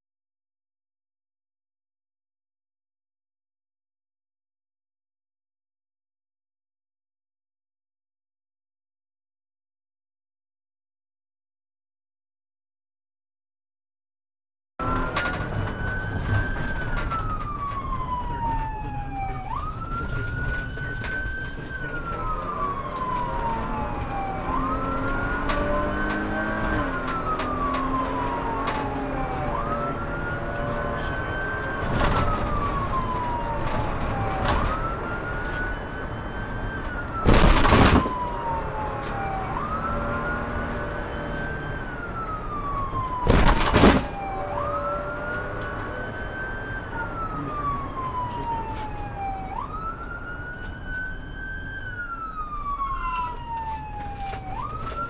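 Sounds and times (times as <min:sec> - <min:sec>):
patrol car engine and road noise: 0:14.8 - 0:55.0
police siren wailing: 0:14.8 - 0:55.0.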